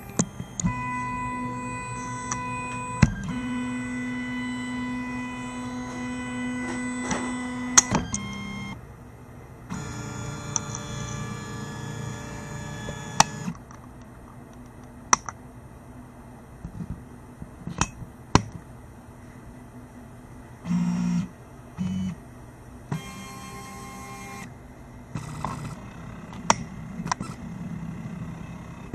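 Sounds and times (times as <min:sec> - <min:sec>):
electric motor whine: 0:00.0 - 0:08.8, 0:09.7 - 0:13.6, 0:22.9 - 0:24.5, 0:25.2 - 0:28.9.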